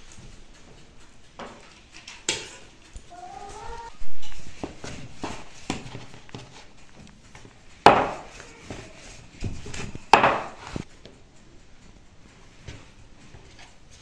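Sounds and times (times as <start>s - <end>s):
rolling pin rolling dough: 2.4s - 11.2s
sharp wooden knocks: 7.8s - 8.3s, 10.1s - 10.6s.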